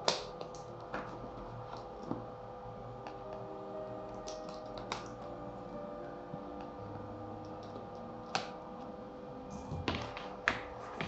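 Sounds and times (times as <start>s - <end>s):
faint background music: 0.0s - 11.0s.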